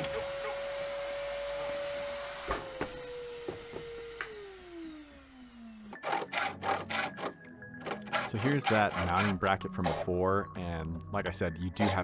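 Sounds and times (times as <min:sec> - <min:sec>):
power tool motor whining: 0:00.0 - 0:10.0
hacksaw rasping on steel: 0:06.0 - 0:10.1.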